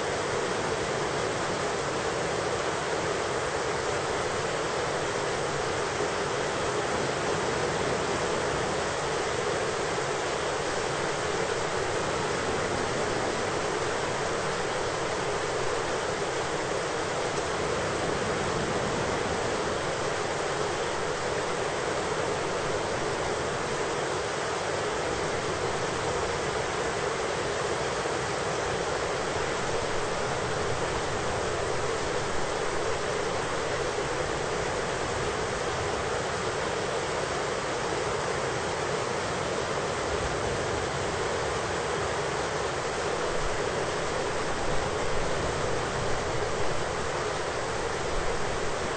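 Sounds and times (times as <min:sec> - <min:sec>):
heavy rain: 0:00.0 - 0:48.9.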